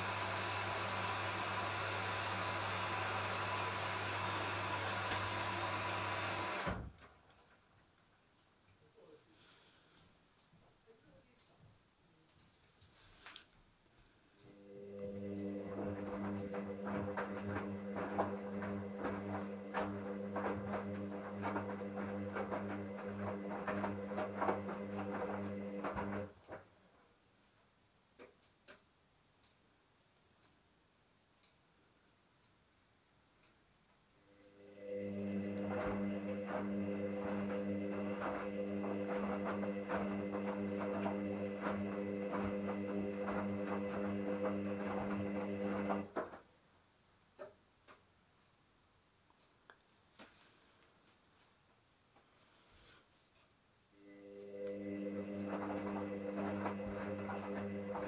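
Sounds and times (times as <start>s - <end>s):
washing machine motor humming: 0.0s - 7.2s, 14.5s - 26.6s, 34.5s - 46.4s, 54.0s - 58.0s.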